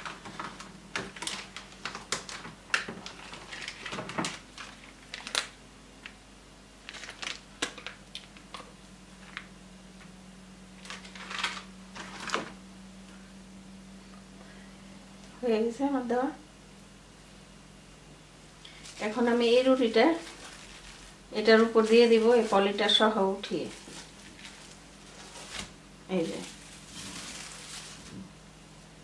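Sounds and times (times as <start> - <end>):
plastic film crinkling: 0.0 - 6.2, 6.8 - 9.5, 10.8 - 12.6, 18.7 - 28.4
faint steady hum: 0.0 - 29.0.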